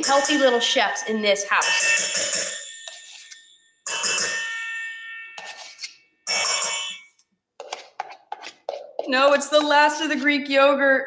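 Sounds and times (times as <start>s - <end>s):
metal spoon striking steel bowl: 0.0s - 8.1s.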